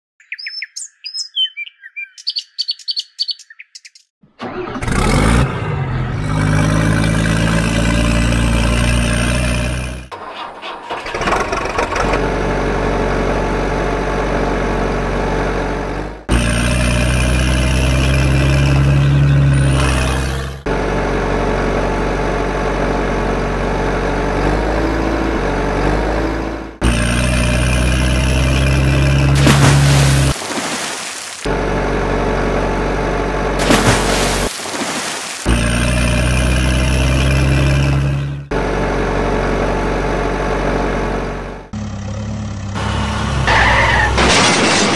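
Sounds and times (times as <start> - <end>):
birds chirping: 0.2 - 4.2
heavy truck engine running: 4.4 - 44.9.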